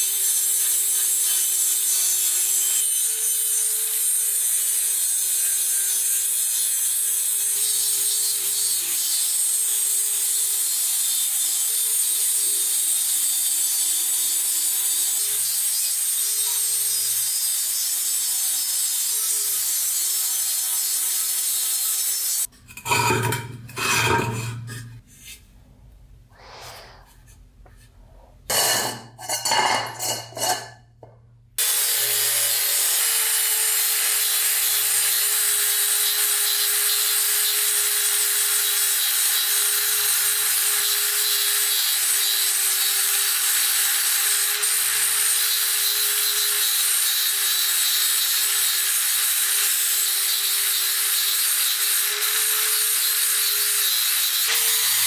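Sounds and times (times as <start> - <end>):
angle grinder grinding steel: 0.0 - 25.4, 28.5 - 30.8, 31.6 - 55.0
knocks and scrapes: 22.5 - 31.3.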